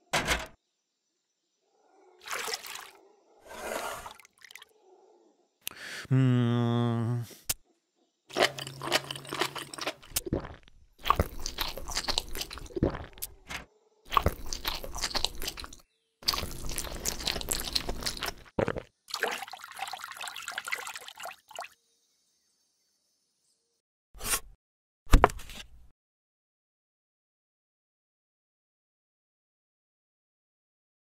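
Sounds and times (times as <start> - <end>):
crunching: 8.3 - 18.9.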